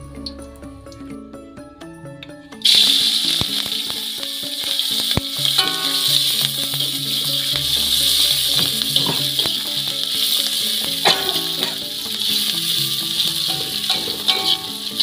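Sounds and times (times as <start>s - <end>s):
background music: 0.0s - 15.0s
food sizzling in a wok: 2.6s - 15.0s
metal spatula scraping wok: 4.8s - 15.0s.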